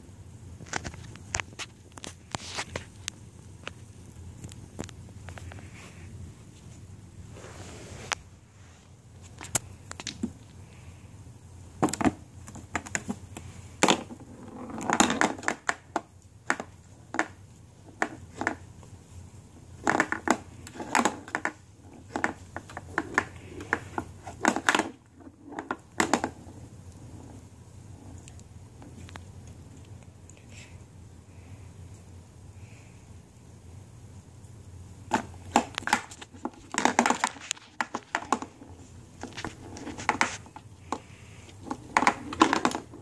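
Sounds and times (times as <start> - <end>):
pool balls clicking: 11.7 - 29.9, 35.0 - 43.0.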